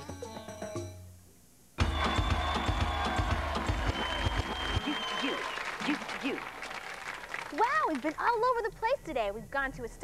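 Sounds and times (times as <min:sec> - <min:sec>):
theme music with drum hits: 0:01.8 - 0:04.7.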